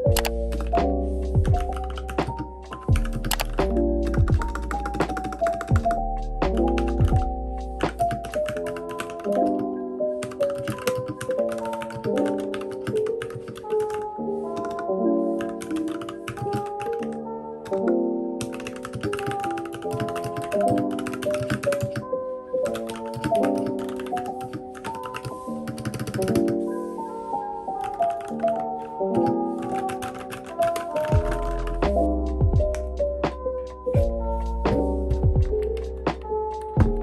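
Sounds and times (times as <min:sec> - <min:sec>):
mechanical keyboard typing: 0:00.0 - 0:22.1, 0:22.7 - 0:26.6, 0:27.8 - 0:33.0, 0:35.5 - 0:37.0
background music sustained notes: 0:00.0 - 0:37.0.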